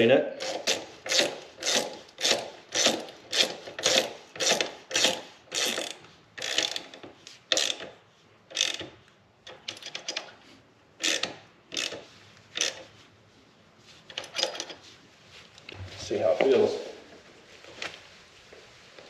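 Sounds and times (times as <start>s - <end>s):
socket ratchet clicking: 0.4s - 8.9s, 11.0s - 12.0s, 12.6s - 12.8s.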